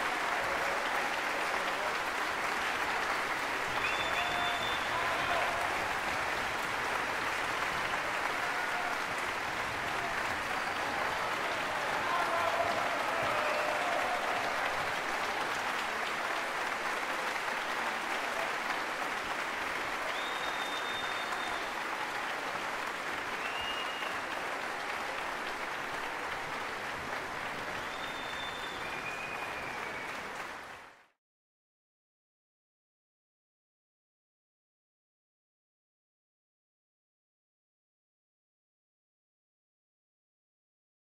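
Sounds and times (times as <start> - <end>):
audience applauding: 0.0 - 31.2
short high whistles: 20.1 - 21.7, 23.4 - 24.3, 27.8 - 30.3.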